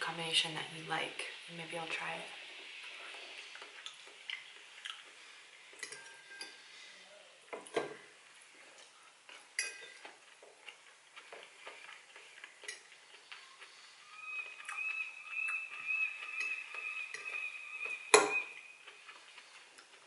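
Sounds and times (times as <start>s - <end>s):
fork clinking against ceramic bowl: 5.8s - 6.6s, 9.6s - 10.1s, 18.1s - 18.5s.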